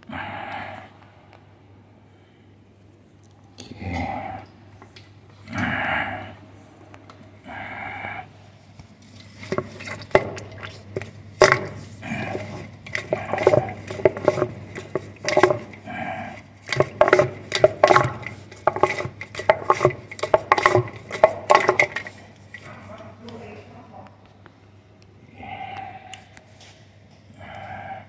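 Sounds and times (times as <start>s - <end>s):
steady low hum: 0.0s - 28.0s
clattering knocks in drain pipe: 9.2s - 22.7s.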